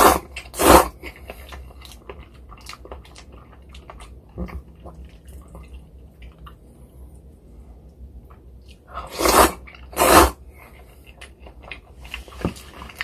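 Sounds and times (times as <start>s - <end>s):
person chewing noodles: 0.0s - 7.3s, 7.9s - 13.0s.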